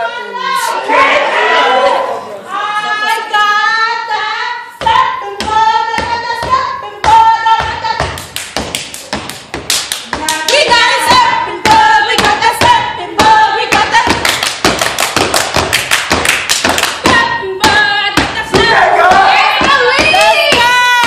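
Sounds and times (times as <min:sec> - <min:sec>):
stamping and clapping: 0:08.0 - 0:21.0.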